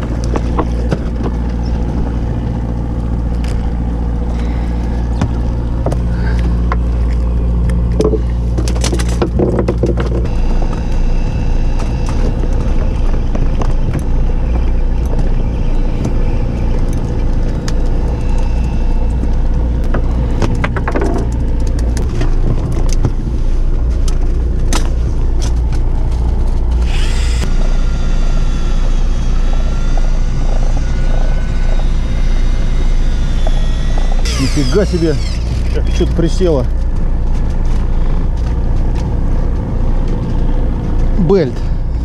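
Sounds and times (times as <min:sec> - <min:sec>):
boat engine droning: 0:00.0 - 0:42.0
thin wavering whine: 0:00.0 - 0:42.0
sharp clicks and knocks: 0:05.2 - 0:10.8, 0:19.1 - 0:23.2.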